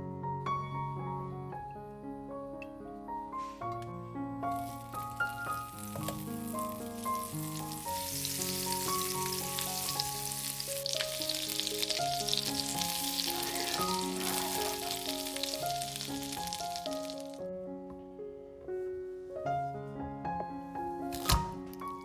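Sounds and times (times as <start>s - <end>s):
soft piano music: 0.0s - 22.0s
food sizzling in a pan: 4.5s - 17.4s.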